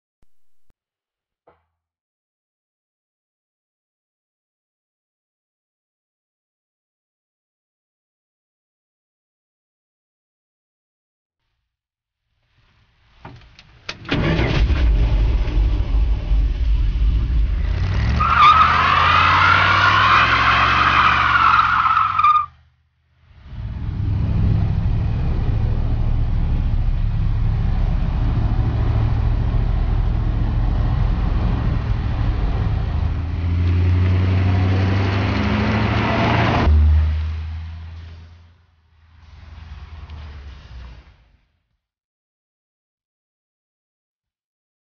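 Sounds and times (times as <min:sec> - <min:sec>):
engine running and revving: 0:14.0 - 0:21.5, 0:23.3 - 0:41.4.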